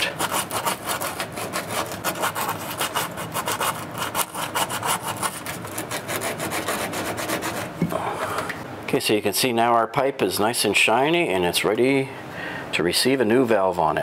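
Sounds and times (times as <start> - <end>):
emery cloth rasping on pipe: 0.0 - 7.8.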